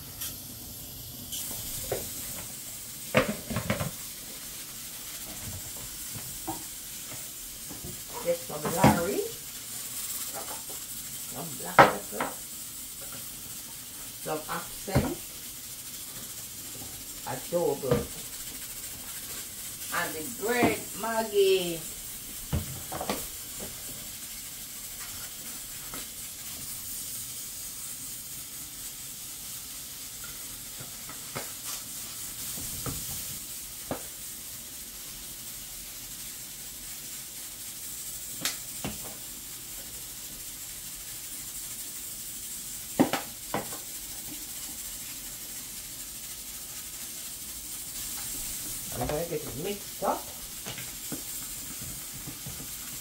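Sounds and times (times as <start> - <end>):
steam hissing from pressure cooker: 0.0 - 53.0.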